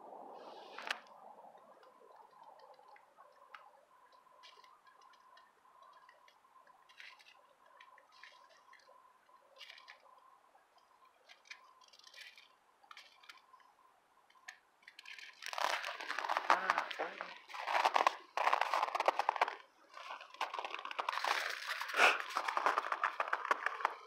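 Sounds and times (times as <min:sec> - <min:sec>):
rustling at the microphone: 0:14.4 - 0:24.0
footsteps crunching on snow: 0:15.6 - 0:24.0.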